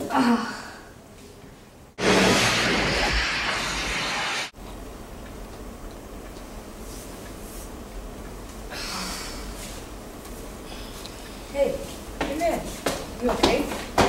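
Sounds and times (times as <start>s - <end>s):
steady background hiss: 0.0s - 14.0s
loud rushing crackling noise: 2.0s - 4.6s.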